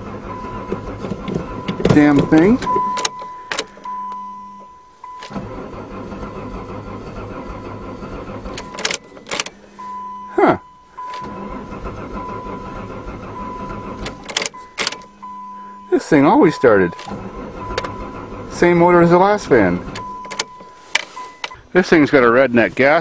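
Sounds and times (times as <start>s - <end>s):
engine cranking on starter: 0.0s - 23.0s
warning chime beeping: 1.5s - 5.6s, 8.6s - 19.4s, 20.0s - 21.7s.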